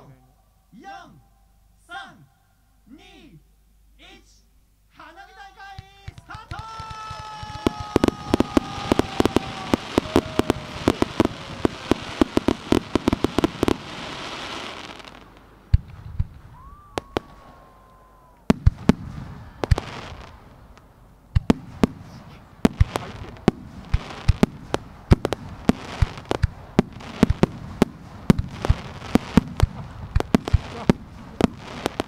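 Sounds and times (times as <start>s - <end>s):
fireworks pops and crackles: 5.7s - 17.5s, 18.4s - 32.0s
firework shells bursting: 5.8s - 17.6s, 18.4s - 32.0s
hissing rush: 6.9s - 15.7s
firework whistles: 7.2s - 20.4s.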